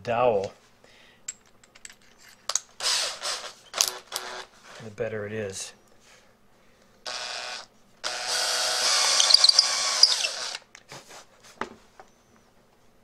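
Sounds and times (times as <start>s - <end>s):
electric drill running: 2.8s - 4.5s, 7.1s - 10.6s.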